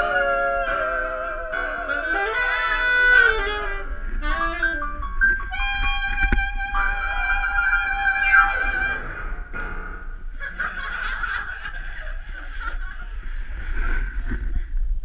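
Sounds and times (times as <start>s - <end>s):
person singing high wavering note: 0.0s - 4.8s, 5.4s - 9.4s
people laughing: 10.4s - 14.4s.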